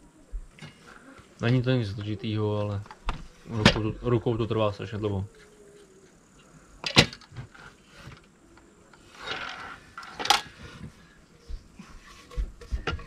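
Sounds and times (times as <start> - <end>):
timber scraping on saw table: 9.0 - 10.7.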